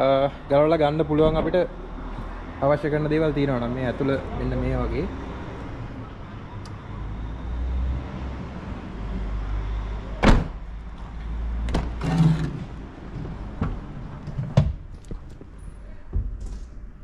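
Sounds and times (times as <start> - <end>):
car door shutting: 10.2 - 10.6.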